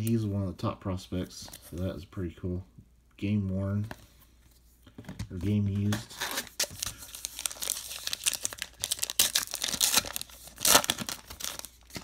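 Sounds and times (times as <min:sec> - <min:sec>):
card pack wrapper tearing: 0:05.8 - 0:12.0.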